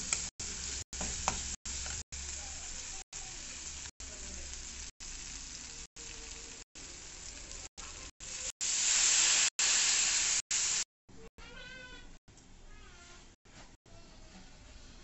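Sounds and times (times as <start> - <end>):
curry sizzling in oil: 0.0 - 10.9.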